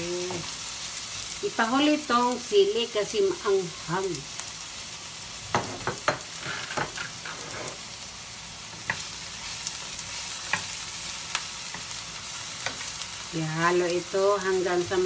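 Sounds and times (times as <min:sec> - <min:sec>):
vegetables sizzling in a frying pan: 0:00.0 - 0:15.0
wooden spatula scraping a pan: 0:05.6 - 0:08.0.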